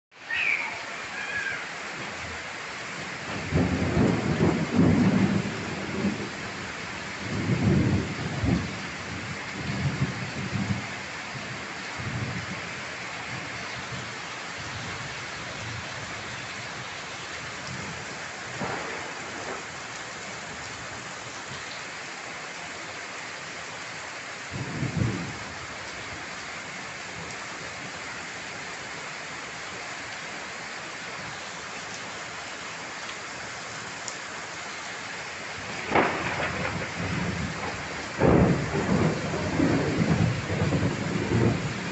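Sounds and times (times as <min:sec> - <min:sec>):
heavy rain pouring: 0:00.1 - 0:41.9
thunder rumbling: 0:03.2 - 0:06.4, 0:07.2 - 0:10.9, 0:18.5 - 0:19.7, 0:24.5 - 0:25.4, 0:35.6 - 0:41.9.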